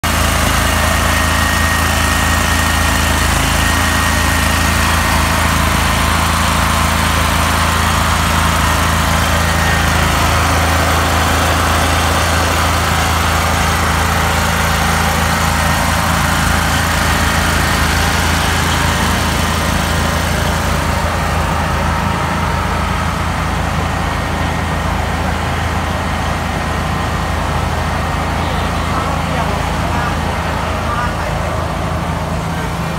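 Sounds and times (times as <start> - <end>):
generator engine hum: 0.0 - 32.9.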